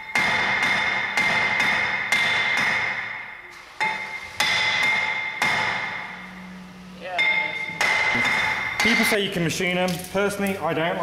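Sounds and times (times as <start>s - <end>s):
hammer striking metal rotor: 0.0s - 6.4s, 7.2s - 9.4s.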